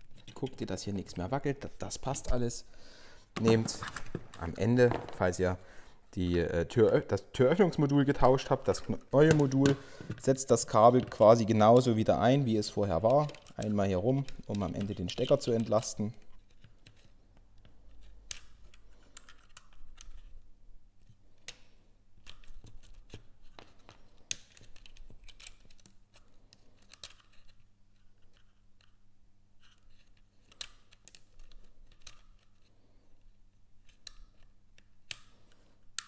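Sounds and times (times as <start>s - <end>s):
plastic clicks and rustling: 6.8s - 12.1s, 12.7s - 20.4s.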